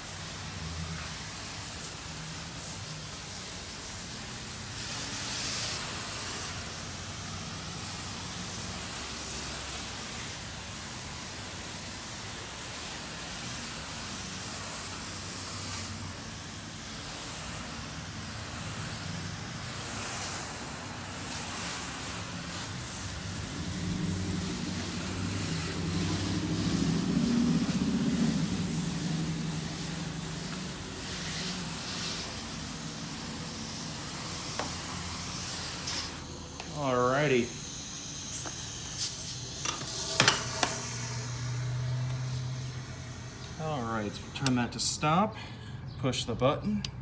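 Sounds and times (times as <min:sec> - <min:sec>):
pressure washer spray hissing: 0:00.0 - 0:45.4
low hum: 0:22.9 - 0:31.8.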